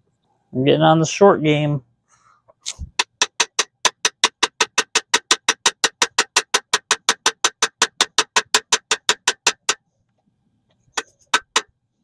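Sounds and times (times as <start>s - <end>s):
rapid evenly spaced clicks: 2.9s - 9.8s.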